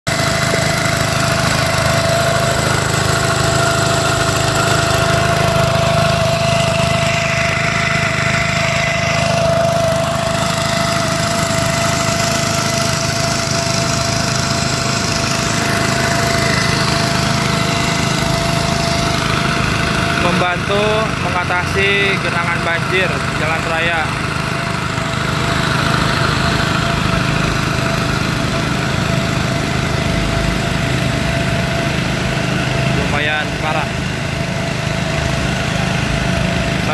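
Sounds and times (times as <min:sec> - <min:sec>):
pump engine droning: 0:00.1 - 0:36.9
steady whine: 0:00.1 - 0:36.9.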